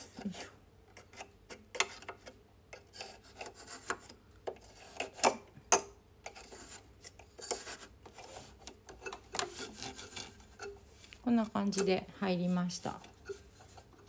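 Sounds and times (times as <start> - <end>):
soft fabric rubbing: 9.5 - 14.0.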